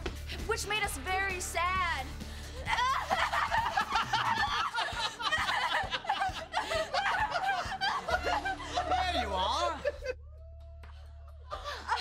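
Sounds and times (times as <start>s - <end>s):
audience laughter: 2.8s - 10.1s.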